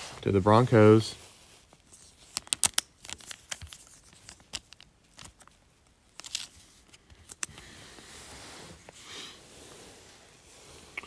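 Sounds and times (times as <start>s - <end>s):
plastic card sleeve crinkling: 1.3s - 7.6s.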